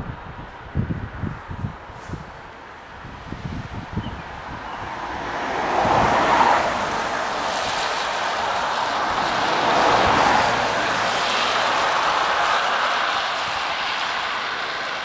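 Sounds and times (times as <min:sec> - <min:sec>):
distant steam locomotive exhaust roar: 0:05.2 - 0:15.0.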